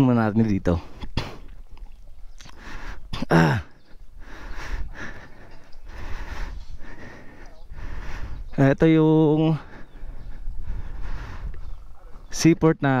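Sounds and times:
person sighing and breathing: 0:02.5 - 0:08.4.

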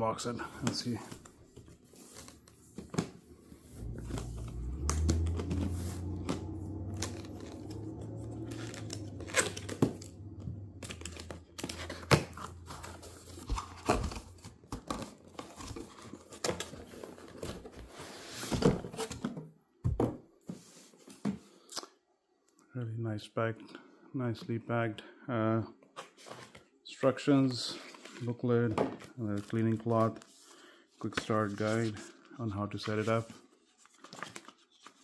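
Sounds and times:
low steady rumble: 0:03.4 - 0:13.7
cardboard box being opened: 0:03.8 - 0:19.2.

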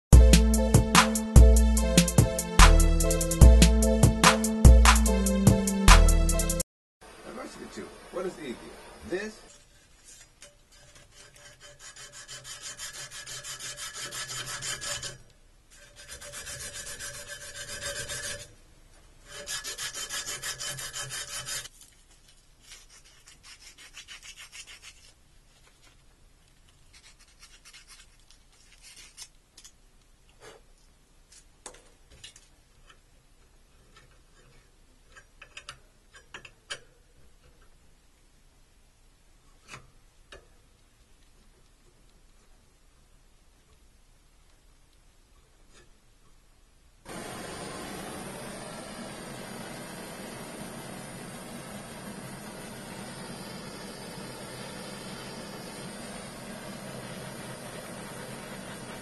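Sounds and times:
abrasive cloth rasping on pipe: 0:09.5 - 0:18.6, 0:19.2 - 0:21.8, 0:22.6 - 0:25.2.

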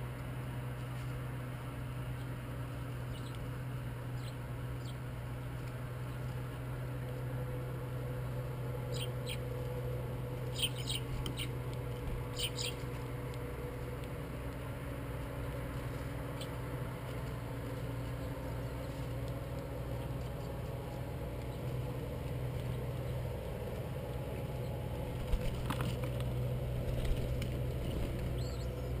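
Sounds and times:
small birds chirping: 0:02.0 - 0:06.7, 0:08.8 - 0:09.6, 0:10.4 - 0:13.0, 0:15.4 - 0:16.7, 0:17.9 - 0:25.8, 0:27.0 - 0:29.0.

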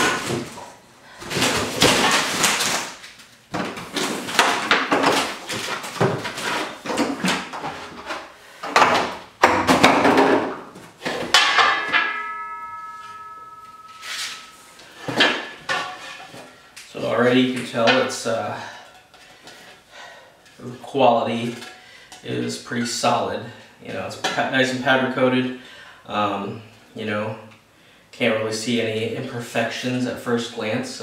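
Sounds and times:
metal reel clanking and ringing: 0:11.4 - 0:16.0.

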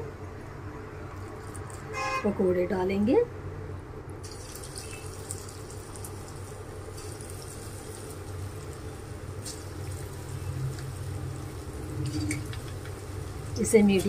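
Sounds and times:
batter crackling in hot oil: 0:01.0 - 0:01.9, 0:04.2 - 0:14.0
food deep-frying in oil: 0:04.2 - 0:14.0.

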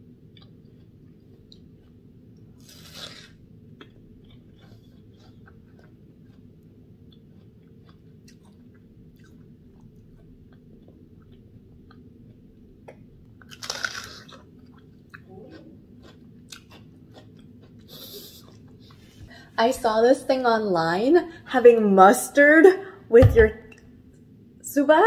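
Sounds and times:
chewing watermelon: 0:00.3 - 0:19.1
crunchy bite into watermelon: 0:02.6 - 0:05.9, 0:13.5 - 0:14.5.

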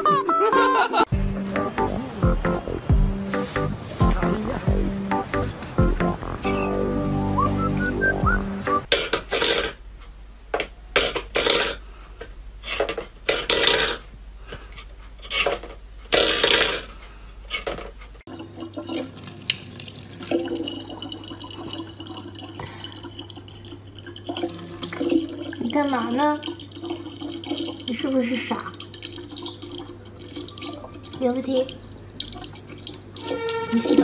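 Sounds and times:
tap water running into bottle: 0:18.3 - 0:34.0.

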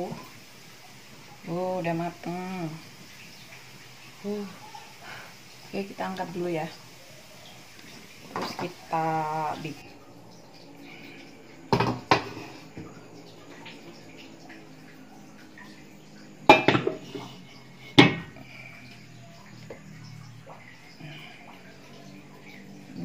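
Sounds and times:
metal cookware clanking: 0:16.5 - 0:17.2.

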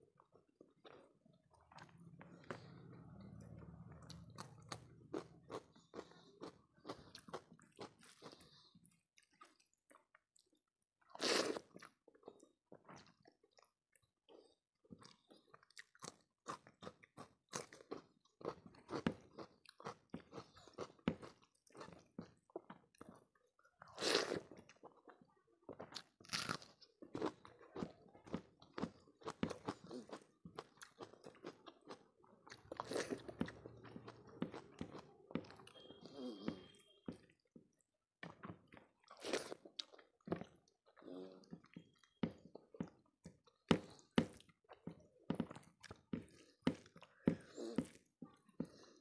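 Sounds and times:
chewing cucumber crunches: 0:25.8 - 0:35.8.

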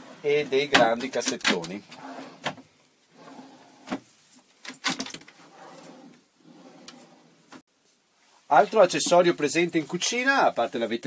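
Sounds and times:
drawers sliding open and shut: 0:00.0 - 0:07.6.

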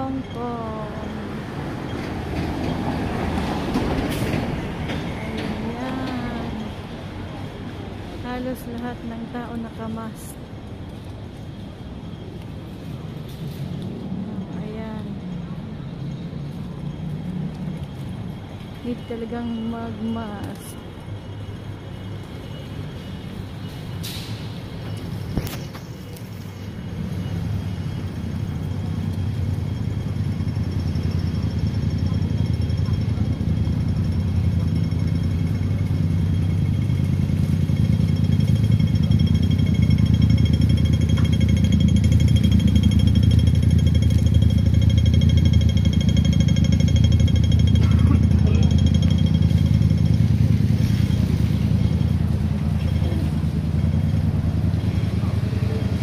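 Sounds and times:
vehicle engine rumble: 0:00.0 - 0:56.0.

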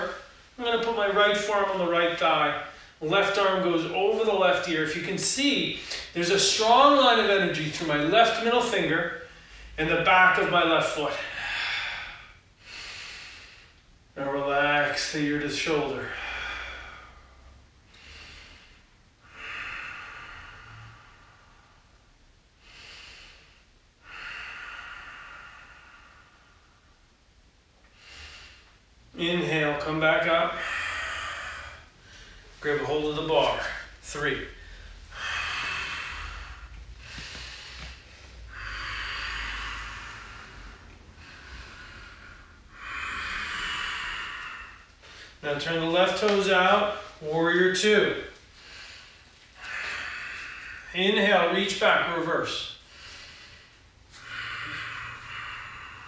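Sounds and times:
man breathing audibly: 0:05.7 - 0:06.2, 0:09.0 - 0:09.8, 0:11.2 - 0:14.1, 0:15.9 - 0:29.2, 0:29.8 - 0:47.3, 0:48.1 - 0:56.0.

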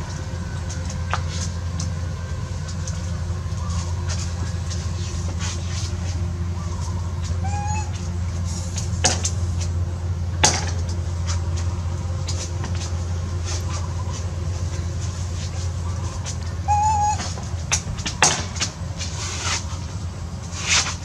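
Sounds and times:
short wavering call: 0:00.0 - 0:09.1, 0:13.4 - 0:18.5
steady low hum: 0:00.0 - 0:21.0.

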